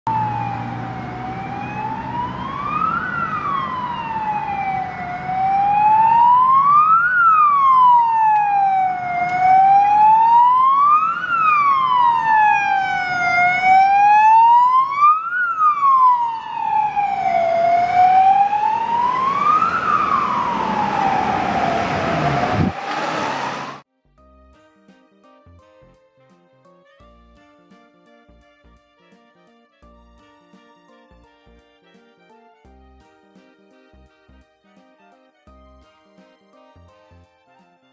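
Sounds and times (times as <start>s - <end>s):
ambulance siren wailing: 0.1s - 23.8s.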